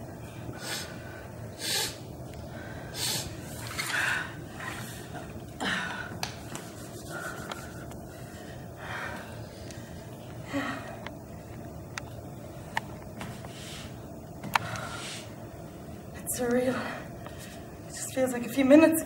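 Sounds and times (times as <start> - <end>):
woman gasping: 5.6 - 6.2.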